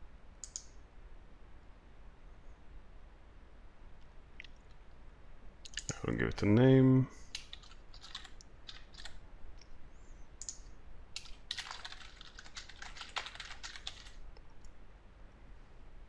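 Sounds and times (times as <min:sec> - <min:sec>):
typing on computer keyboard: 0:07.3 - 0:09.2, 0:11.2 - 0:14.2.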